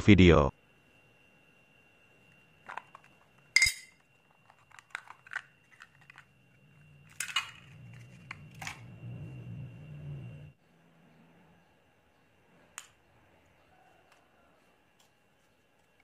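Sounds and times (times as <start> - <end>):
faint high whine: 0.0 - 16.0
low handling rumble: 7.9 - 10.6.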